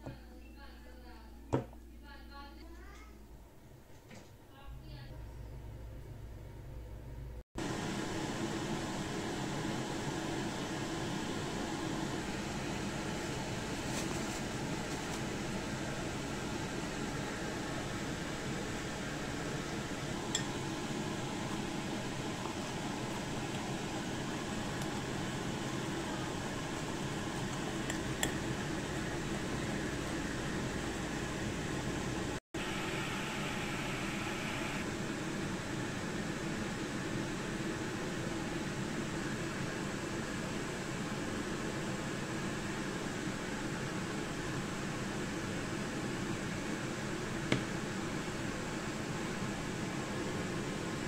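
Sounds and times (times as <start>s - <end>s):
fan humming with hiss: 0.0s - 51.0s.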